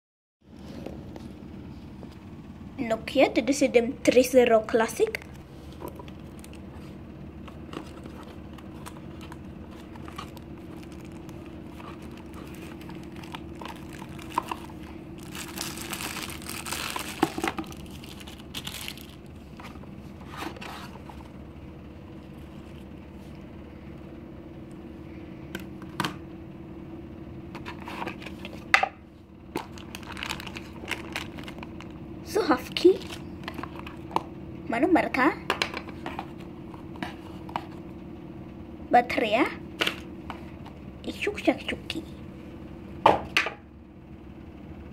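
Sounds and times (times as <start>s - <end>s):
plastic packaging crinkling and tearing: 7.7s - 19.4s, 29.5s - 31.9s.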